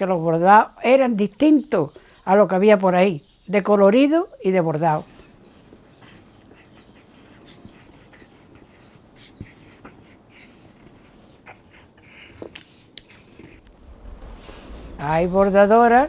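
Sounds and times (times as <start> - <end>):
pencil scratching on paper: 4.9 - 13.7.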